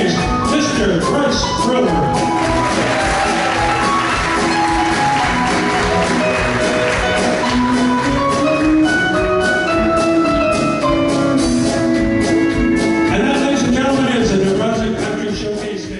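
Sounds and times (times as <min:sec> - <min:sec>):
electronic keyboard: 0:00.0 - 0:15.2
electric guitar: 0:02.2 - 0:14.2.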